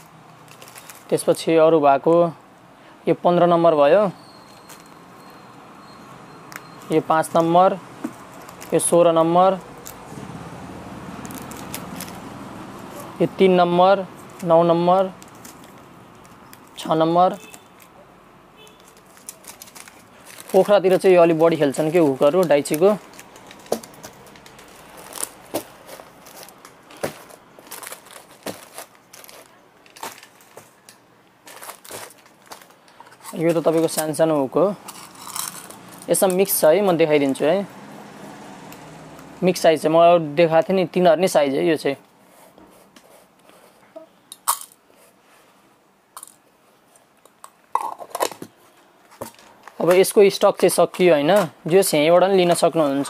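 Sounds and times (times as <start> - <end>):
plastic packets crinkling: 0.0 - 1.5, 8.1 - 10.1, 11.2 - 13.2, 14.2 - 18.0, 18.6 - 36.5
plastic packaging clicks: 18.7 - 21.1, 21.8 - 34.1.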